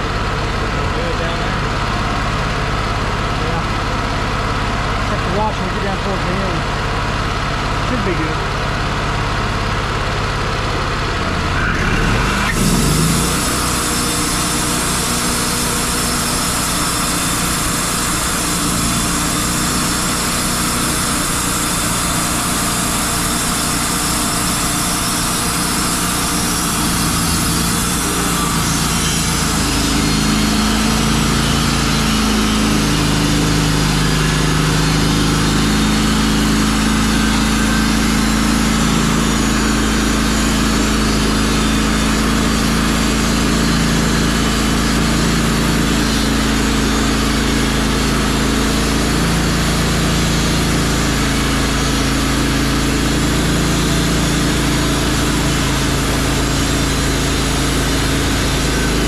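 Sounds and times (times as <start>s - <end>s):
sawmill engine running: 0.0s - 59.0s
low hum: 9.7s - 15.3s
band blade sawing log: 10.9s - 59.0s.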